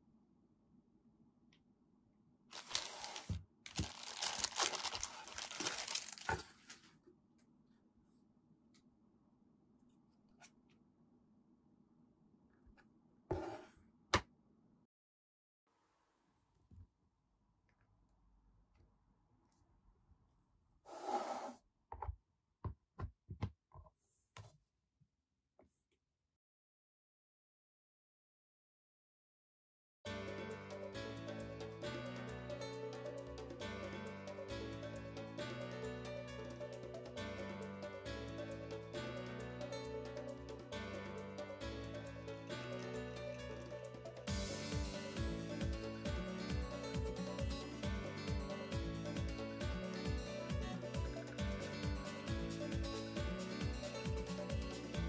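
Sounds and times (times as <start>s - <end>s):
plastic bag crinkling: 2.5s - 6.9s
plastic parts handled: 2.6s - 6.9s
scraping rub: 13.3s - 13.8s.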